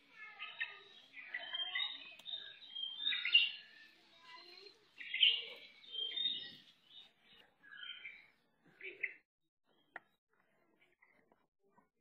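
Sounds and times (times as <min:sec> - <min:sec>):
birds chirping: 0:00.0 - 0:11.2.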